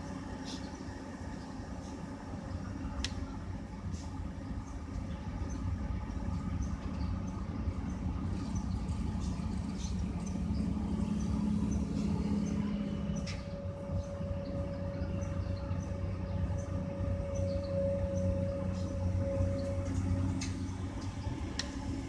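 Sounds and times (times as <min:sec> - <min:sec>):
excavator diesel engine droning: 0:00.0 - 0:22.0
hydraulic whine: 0:10.5 - 0:22.0.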